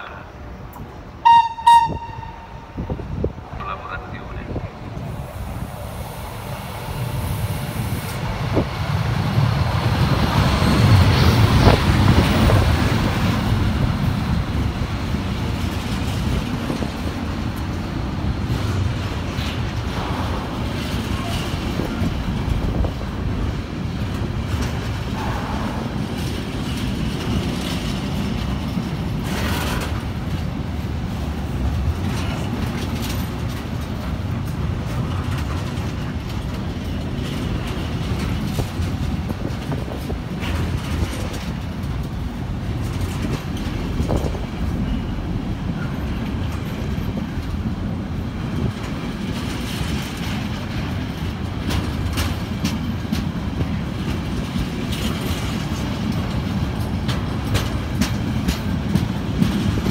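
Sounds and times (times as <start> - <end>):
train wheels rumbling on rail: 0.0 - 59.9
wheel clanks over rail joints: 31.6 - 59.9.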